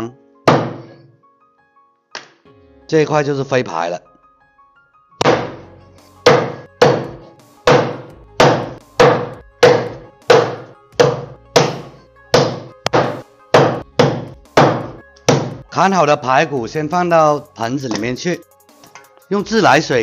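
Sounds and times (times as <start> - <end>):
cleaver chopping on wooden block: 0.5 - 1.0, 5.2 - 15.6.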